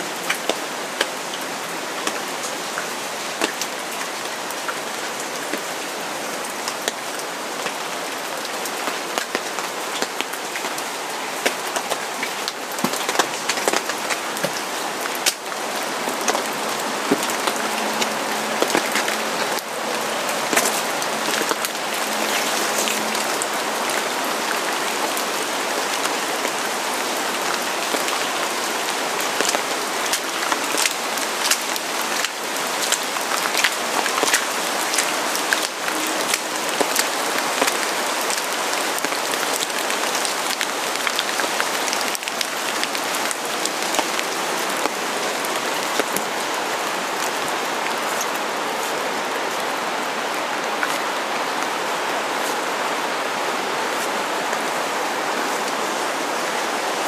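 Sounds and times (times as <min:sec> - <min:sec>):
raindrops ticking: 0:00.0 - 0:52.6
rain falling: 0:00.0 - 0:57.0.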